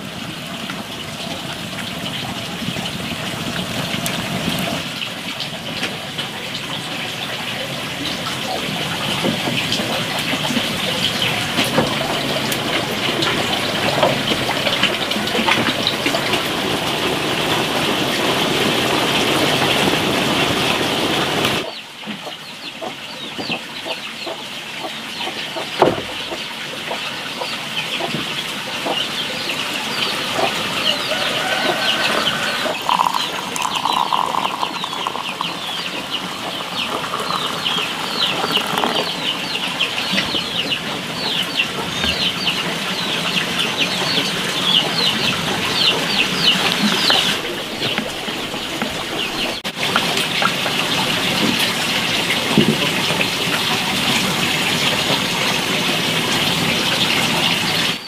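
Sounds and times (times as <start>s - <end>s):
chickens clucking: 20.8s - 55.8s.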